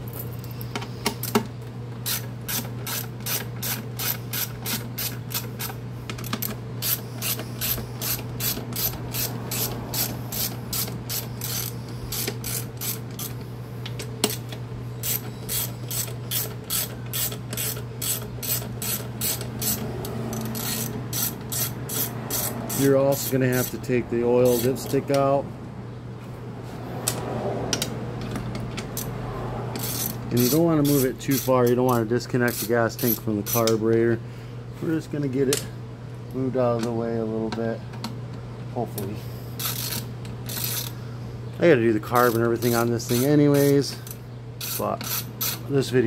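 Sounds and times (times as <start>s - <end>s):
socket ratchet clicking: 2.0s - 23.4s.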